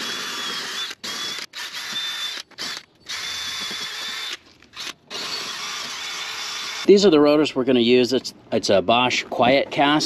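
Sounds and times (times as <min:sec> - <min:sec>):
drill whining: 0:00.0 - 0:06.9.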